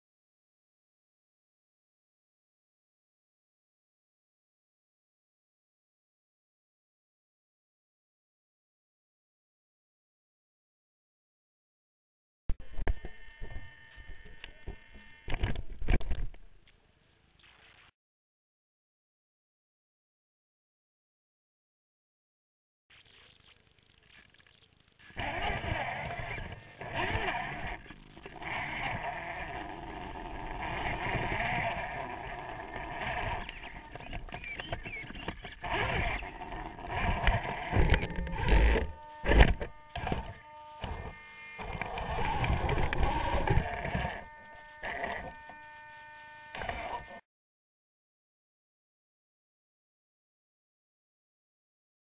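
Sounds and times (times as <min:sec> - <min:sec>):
electric motors whining: 0:12.6 - 0:15.6, 0:25.0 - 0:47.2.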